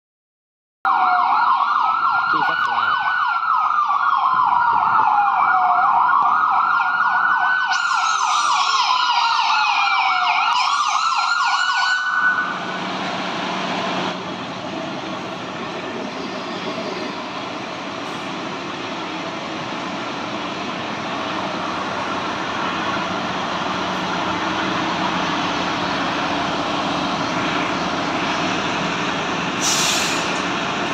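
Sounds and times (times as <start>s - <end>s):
higher sweeping siren tone: 0.9s - 18.3s
fire truck siren wailing: 0.9s - 30.9s
diesel engine running: 12.3s - 30.9s.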